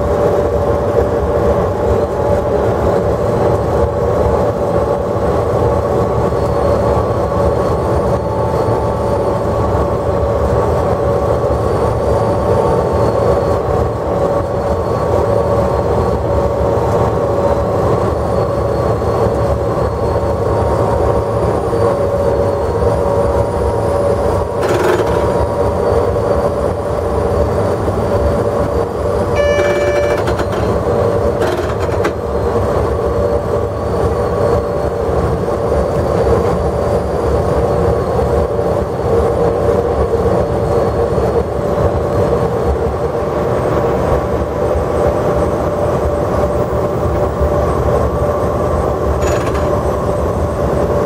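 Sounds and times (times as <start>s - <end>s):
constant locomotive whine: 0.0s - 51.0s
wheels rumbling on track: 0.0s - 51.0s
brief higher tone: 29.3s - 30.8s.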